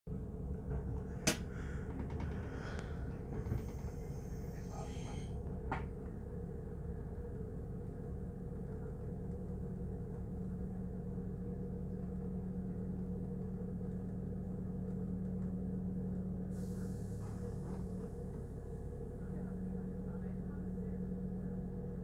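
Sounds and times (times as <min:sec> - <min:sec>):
train motor hum and wheel rumble: 0:00.1 - 0:22.0
air brake hiss: 0:03.6 - 0:05.4, 0:16.5 - 0:17.8.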